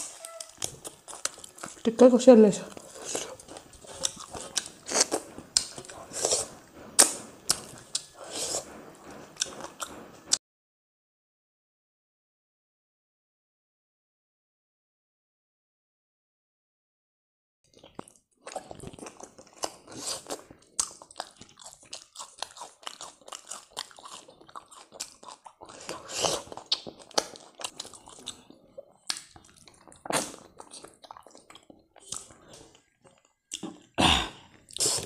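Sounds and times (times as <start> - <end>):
person chewing with mouth smacks: 0.0 - 1.9, 2.7 - 10.4, 17.7 - 35.0.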